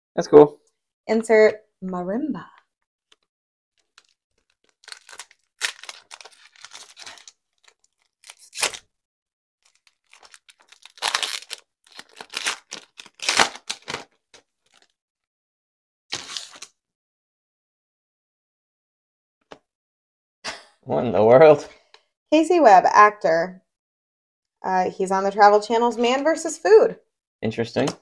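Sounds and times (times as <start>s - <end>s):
wrapper tearing and crinkling: 3.8s - 8.9s, 9.6s - 15.0s, 16.1s - 16.7s
cards being flipped: 8.2s - 8.8s, 9.8s - 14.9s, 16.1s - 16.7s.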